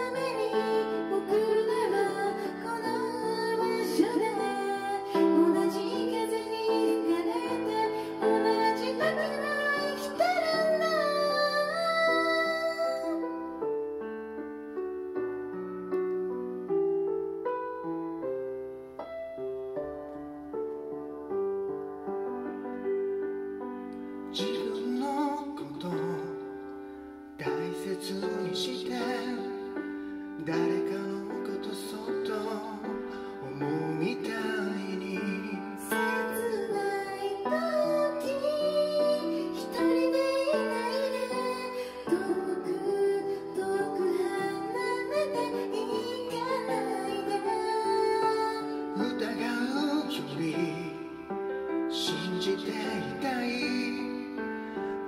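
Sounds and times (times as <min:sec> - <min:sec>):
woman singing: 0:00.0 - 0:13.6, 0:24.4 - 0:26.6, 0:27.4 - 0:29.8, 0:30.4 - 0:51.2
slow gentle solo piano: 0:00.0 - 0:55.0.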